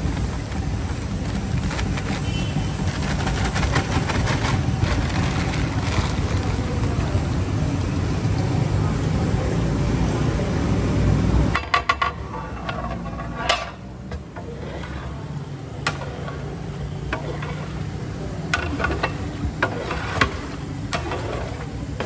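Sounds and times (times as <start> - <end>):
metal ladle clanking on pot: 11.5 - 22.0.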